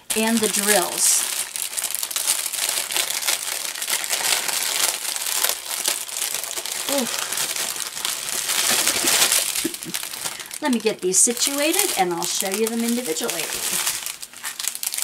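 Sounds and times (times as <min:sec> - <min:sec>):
plastic wrap crinkling: 0:00.0 - 0:15.0.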